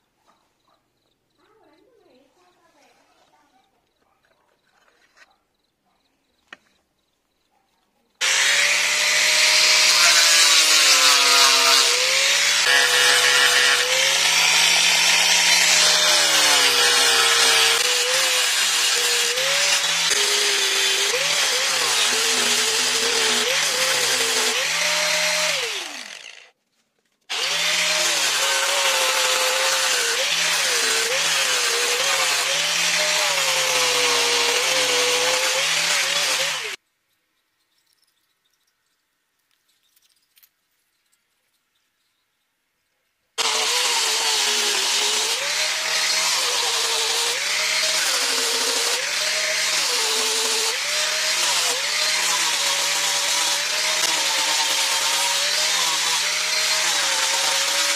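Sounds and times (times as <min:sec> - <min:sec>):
electric sander on wood: 0:08.2 - 0:26.4, 0:27.3 - 0:36.8, 0:43.4 - 0:57.9.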